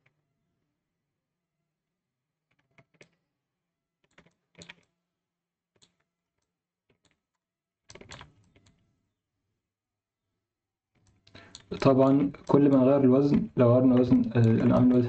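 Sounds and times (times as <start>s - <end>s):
keyboard and mouse clicks: 4.0s - 4.9s, 5.8s - 8.8s, 11.0s - 15.0s.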